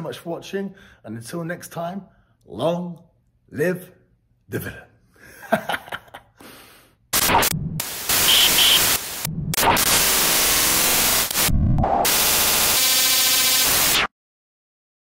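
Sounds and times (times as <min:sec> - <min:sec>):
glitchy static hiss: 0:07.1 - 0:14.1.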